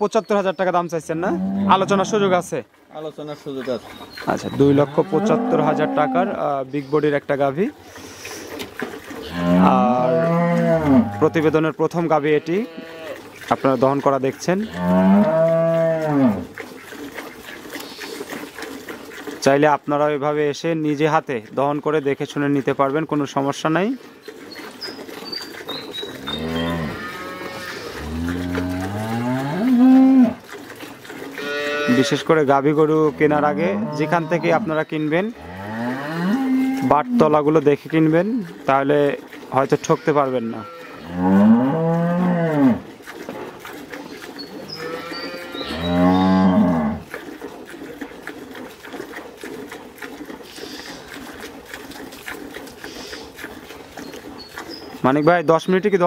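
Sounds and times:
cow mooing: 1.2 - 2.3, 4.6 - 6.4, 9.2 - 11.4, 12.2 - 13.2, 14.6 - 16.5, 26.1 - 30.4, 31.4 - 32.3, 33.0 - 37.3, 39.8 - 42.9, 44.6 - 47.1.

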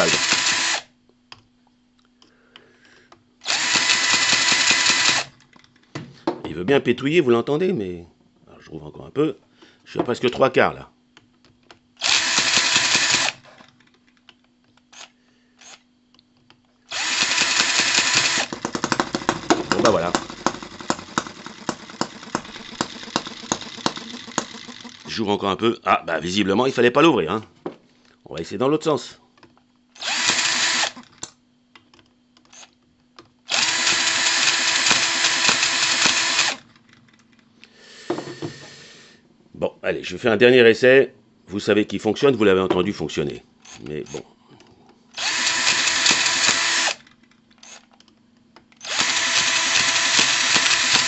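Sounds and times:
cordless drill spinning: 0.0 - 0.9, 3.4 - 5.4, 12.0 - 13.7, 16.9 - 25.3, 30.0 - 31.1, 33.5 - 37.0, 45.1 - 47.9, 48.8 - 51.0.

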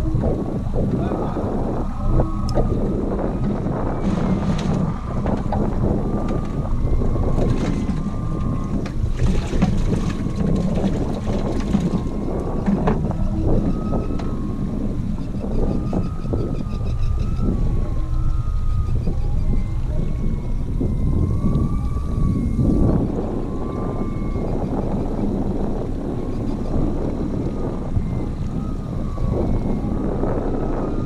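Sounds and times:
outboard motor humming: 0.0 - 31.0
wind buffeting microphone: 0.0 - 31.0
gear knocking in boat: 2.5 - 23.0.

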